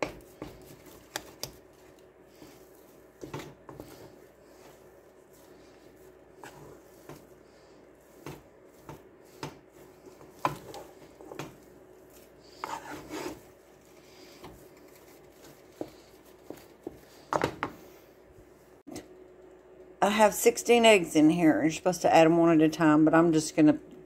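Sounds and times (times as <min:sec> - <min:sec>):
wooden spoon scraping dough in pot: 0:00.0 - 0:17.9.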